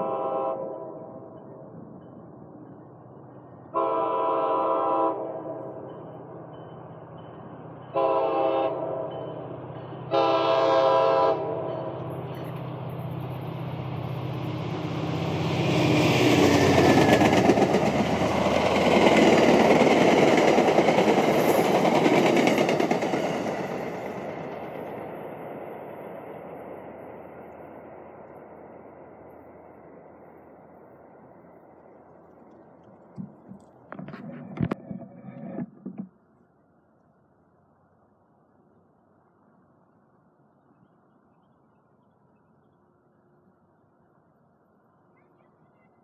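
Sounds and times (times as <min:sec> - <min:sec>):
train horn blasts: 0:00.0 - 0:01.2, 0:03.7 - 0:05.8, 0:07.9 - 0:09.2, 0:10.1 - 0:12.0.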